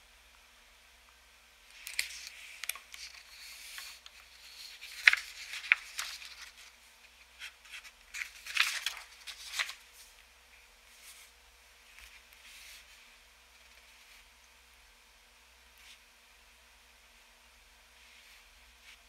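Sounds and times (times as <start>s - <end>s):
paper rustling: 1.7s - 10.1s.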